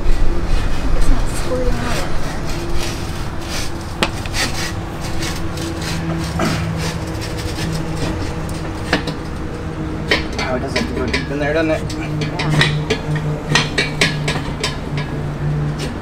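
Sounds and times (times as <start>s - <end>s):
metal scraping and rubbing: 0.0s - 16.0s
steady low hum: 0.0s - 16.0s
sharp metal knocks: 10.0s - 15.2s.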